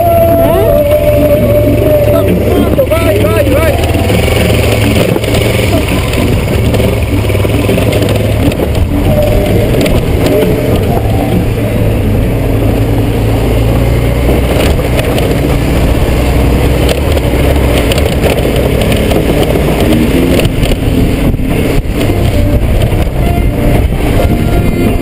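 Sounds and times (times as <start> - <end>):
motorcycle engine running: 0.0 - 25.0
wind buffeting microphone: 1.2 - 25.0
gravel clicks: 2.7 - 11.7, 13.8 - 24.2.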